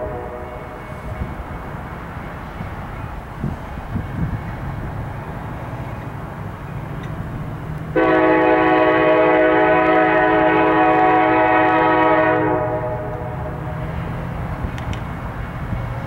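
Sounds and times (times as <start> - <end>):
locomotive air horn blast: 0.0 - 1.3, 8.0 - 13.8.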